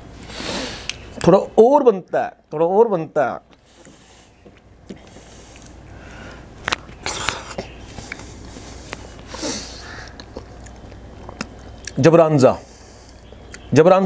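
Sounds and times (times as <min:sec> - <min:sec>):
sharp mouth clicks: 0:00.8 - 0:01.3, 0:10.0 - 0:12.0, 0:13.0 - 0:13.7
chewing and wet mouth smacks: 0:10.0 - 0:12.0.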